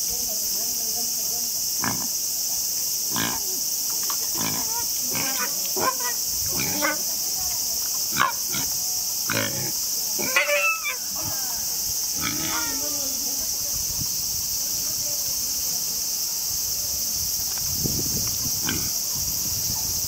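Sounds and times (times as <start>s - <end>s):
steady high hiss: 0.0s - 20.0s
pig squealing: 4.4s - 7.0s, 10.2s - 11.0s.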